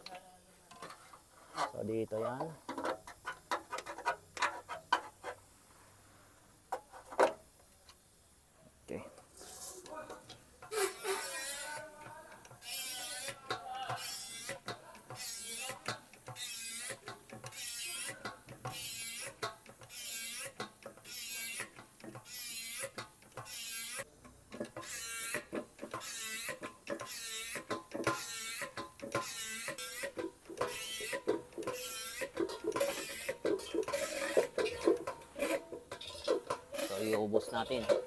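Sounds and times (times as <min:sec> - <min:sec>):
hand pump squeaking: 0:10.6 - 0:11.8, 0:24.6 - 0:38.0.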